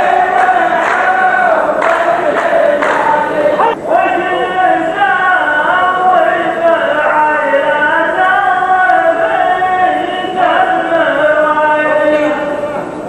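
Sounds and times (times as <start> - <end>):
men chanting: 0.0 - 12.8.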